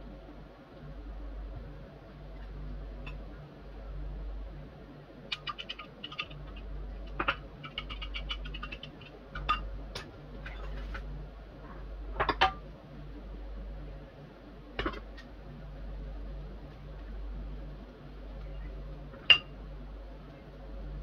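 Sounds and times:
steady low hum: 0.0 - 21.0
utensils clicking on bowls and tray: 5.3 - 10.1.

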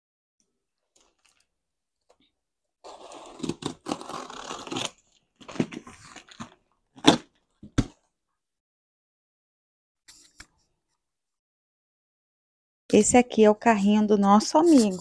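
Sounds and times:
packing tape tearing: 2.9 - 7.3.

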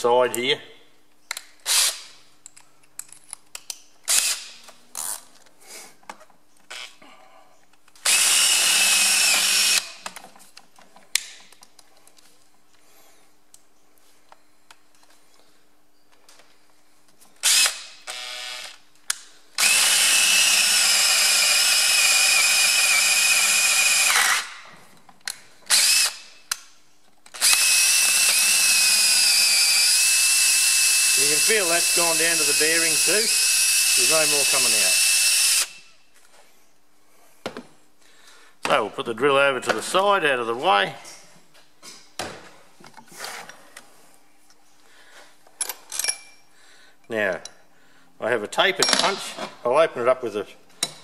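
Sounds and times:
tools clicking and knocking: 2.4 - 3.9, 45.5 - 46.4
power drill whining: 8.0 - 10.0, 17.4 - 18.8, 19.6 - 24.5, 25.7 - 26.3, 27.3 - 35.8.

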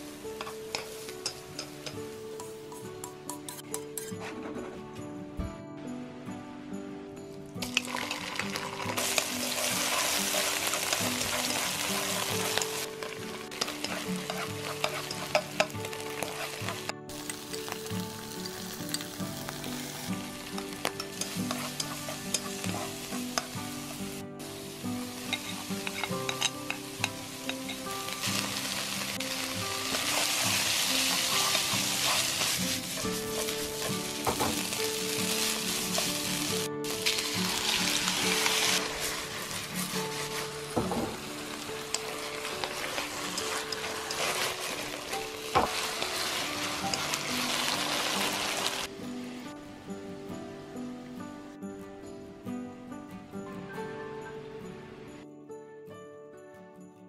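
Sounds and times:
food sizzling in hot oil: 0.0 - 3.6, 7.6 - 49.4
spatula scraping a wok: 3.5 - 4.6, 9.0 - 16.9, 21.0 - 24.0, 25.0 - 36.3, 41.5 - 48.9.

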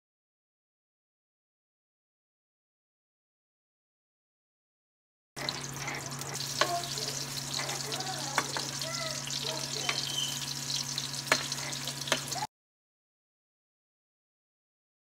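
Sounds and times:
metal spatula scraping pan: 5.4 - 8.7
onion sizzling in oil: 5.4 - 12.5.

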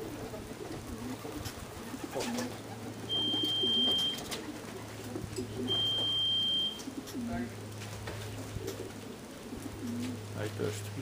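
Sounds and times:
pigeons cooing: 0.0 - 11.0
long electronic beeps: 3.1 - 4.2, 5.7 - 6.8.

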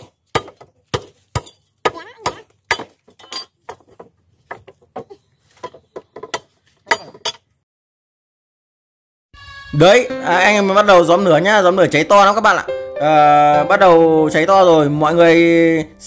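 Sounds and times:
firewood chopping: 0.0 - 7.1.

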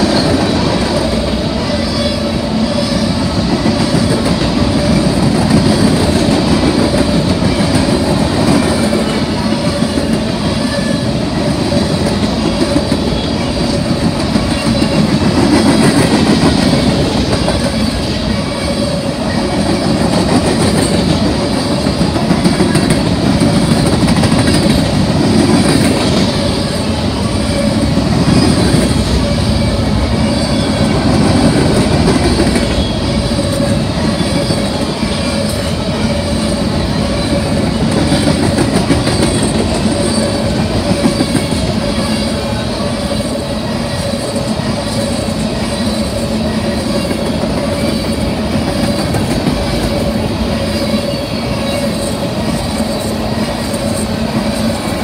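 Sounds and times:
freight train wheels rumbling: 0.0 - 55.0
wheels clickety-clack: 3.0 - 55.0.

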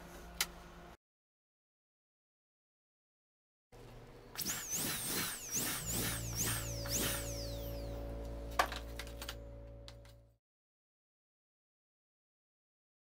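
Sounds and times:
low hum: 3.8 - 10.4
dental drill whining: 4.4 - 8.0.

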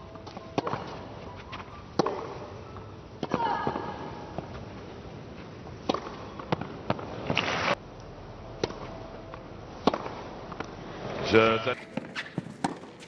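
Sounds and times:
tennis ball hit by rackets: 2.0 - 2.4, 5.8 - 7.5, 9.8 - 10.2, 11.8 - 13.0
tennis ball bouncing on clay: 5.8 - 7.0, 11.8 - 13.0.

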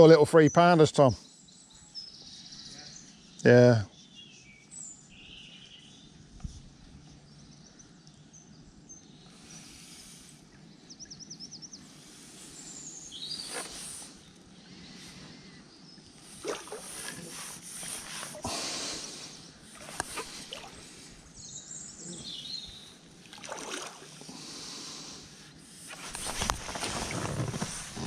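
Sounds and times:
faint outdoor background noise: 0.0 - 28.0
rustles and knocks of handling: 25.9 - 28.0.

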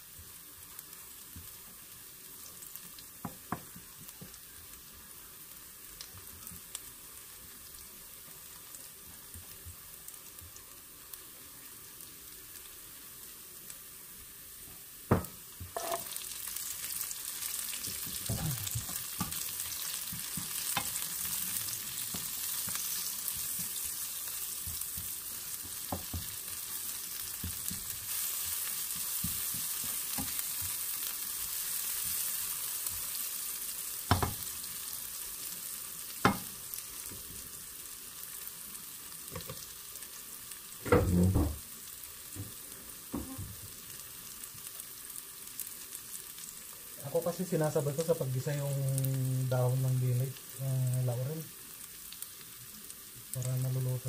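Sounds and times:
garlic sizzling in oil: 0.0 - 54.0
onion dropped into pan knock: 15.1 - 16.1.

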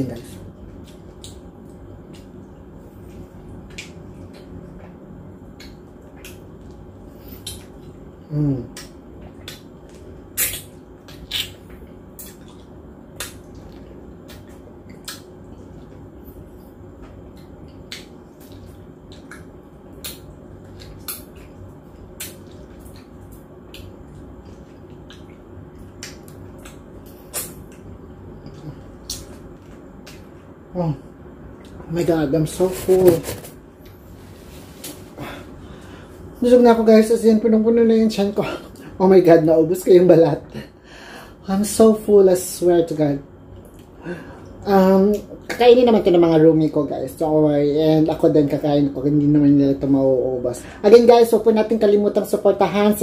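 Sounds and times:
low background hum: 0.0 - 53.0
wet mouth eating sounds: 3.1 - 16.0, 17.2 - 30.5
person humming mm: 8.3 - 8.8.

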